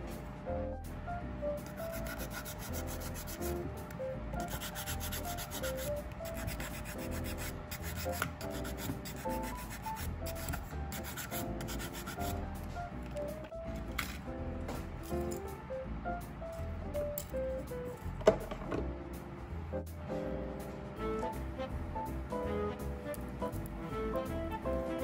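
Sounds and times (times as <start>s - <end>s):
background music: 0.0s - 25.0s
nail file scraping nails: 1.7s - 3.6s, 4.4s - 12.4s.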